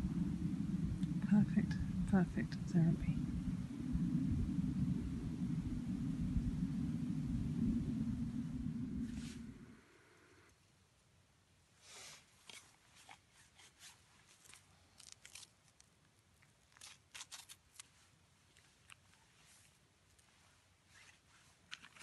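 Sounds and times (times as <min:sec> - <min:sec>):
low rumble: 0:00.0 - 0:10.5
plastic packet crinkling and rustling: 0:12.4 - 0:20.3, 0:20.9 - 0:22.0.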